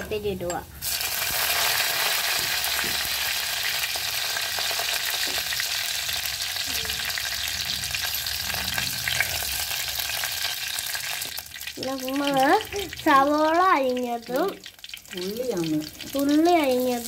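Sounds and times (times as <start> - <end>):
leaves sizzling in hot oil: 0.2 - 17.0.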